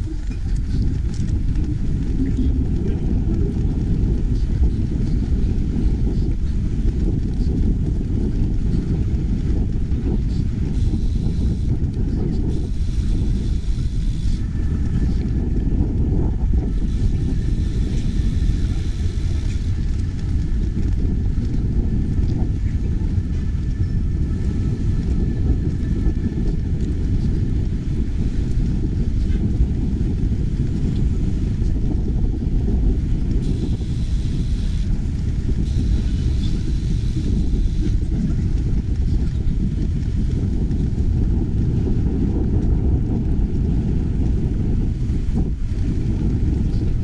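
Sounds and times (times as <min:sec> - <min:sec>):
wind rumble on microphone: 0:00.0 - 0:47.0
high hiss: 0:33.4 - 0:34.9, 0:35.7 - 0:38.0.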